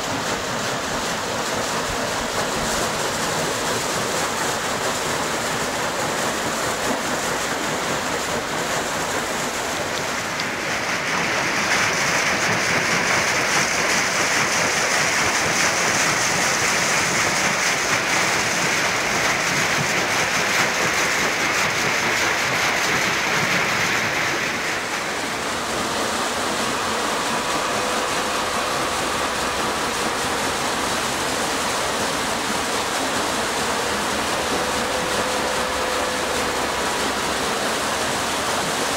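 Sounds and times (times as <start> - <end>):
water rushing through waterwheel: 0.0 - 38.9.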